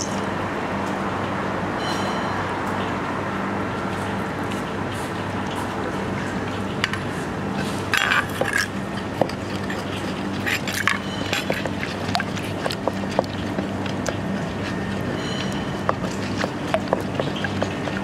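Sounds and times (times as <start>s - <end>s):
steady low hum: 0.0s - 18.0s
pestle scraping: 7.6s - 18.0s
pestle pounding in mortar: 8.0s - 18.0s.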